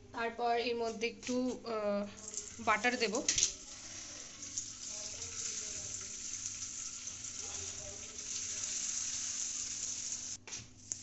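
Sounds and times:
butter sizzling in sugar: 2.2s - 11.0s
spatula stirring in pan: 2.2s - 11.0s.

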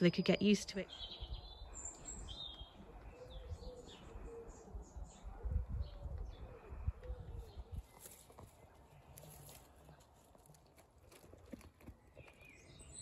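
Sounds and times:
small birds chirping: 0.0s - 13.0s
pigeon cooing: 2.8s - 8.0s.

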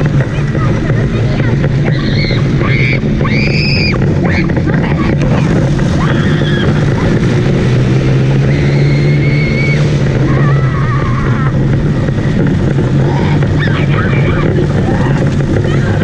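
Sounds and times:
go-kart engine running: 0.0s - 16.0s
child squealing: 1.8s - 5.2s, 6.0s - 6.9s, 8.5s - 11.6s.

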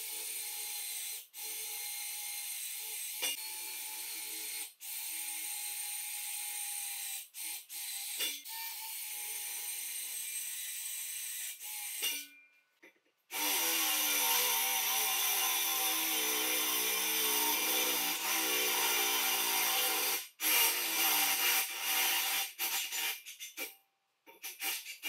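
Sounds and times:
power tool running: 13.3s - 22.5s.

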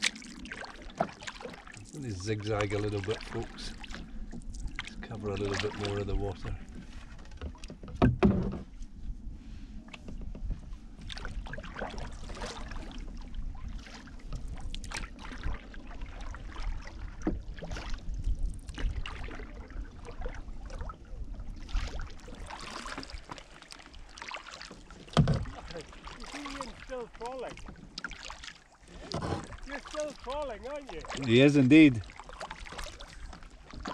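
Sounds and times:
paddle strokes swishing in water: 0.0s - 33.9s
wind rumble on microphone: 3.6s - 22.6s.

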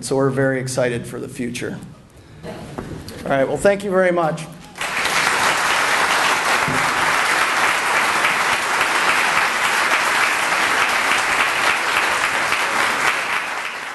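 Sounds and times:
audience applauding: 4.7s - 13.9s.

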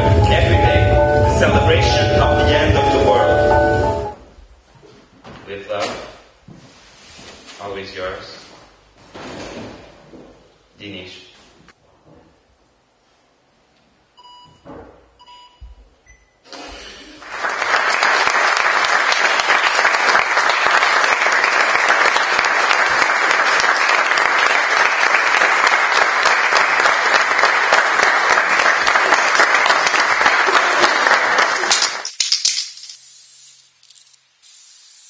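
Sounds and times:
audience applause: 17.0s - 32.1s.

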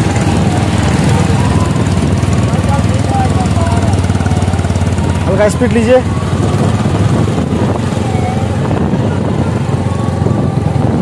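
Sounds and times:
motorcycle engine droning: 0.0s - 11.0s.

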